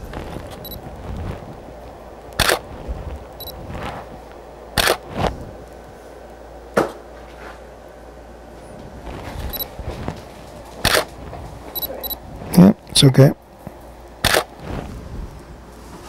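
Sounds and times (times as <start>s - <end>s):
camera shutter click: 14.2s - 14.5s.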